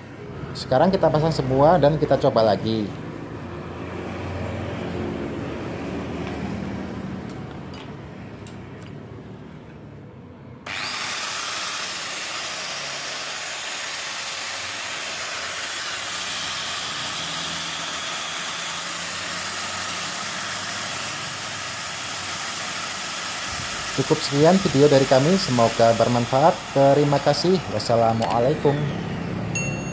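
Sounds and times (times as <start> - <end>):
angle grinder running: 10.6 - 29.9.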